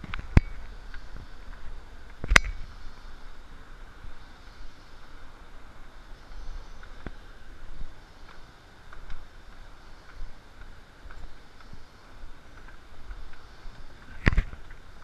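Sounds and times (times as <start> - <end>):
faint clicks: 8.2 - 14.9.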